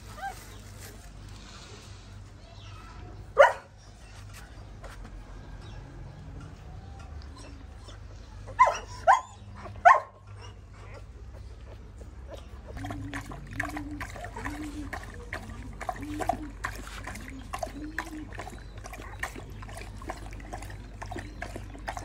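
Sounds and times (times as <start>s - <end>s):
dog barking: 3.4s - 3.7s, 8.6s - 10.2s.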